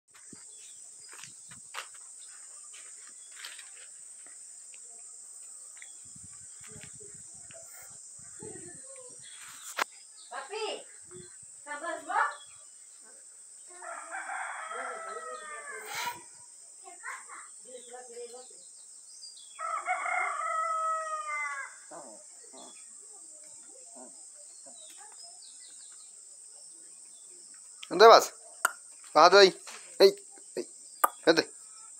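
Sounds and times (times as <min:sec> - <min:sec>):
insect chorus buzzing: 0:00.1 - 0:31.9
faint clicks and scuffs: 0:08.9 - 0:10.0
rooster crowing: 0:13.7 - 0:16.2, 0:19.6 - 0:21.9.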